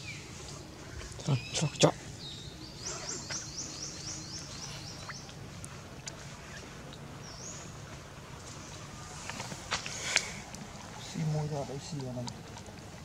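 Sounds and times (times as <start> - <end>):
low outdoor background hum: 0.0 - 13.0.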